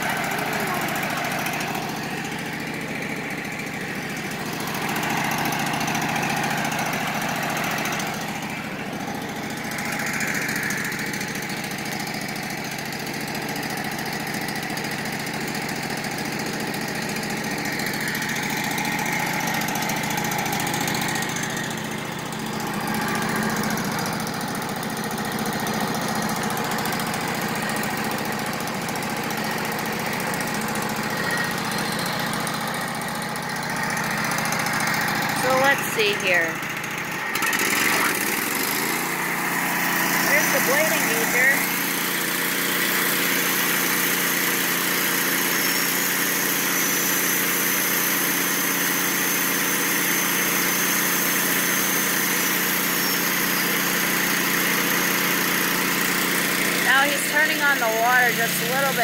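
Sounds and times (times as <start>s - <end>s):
sawmill engine running: 0.0s - 59.0s.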